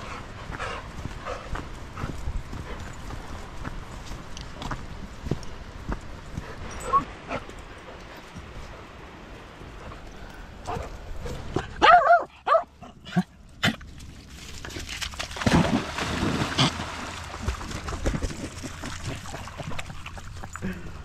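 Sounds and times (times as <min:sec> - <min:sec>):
dog whining and yipping: 0:06.8 - 0:07.1
dog splashing into water: 0:14.6 - 0:20.4.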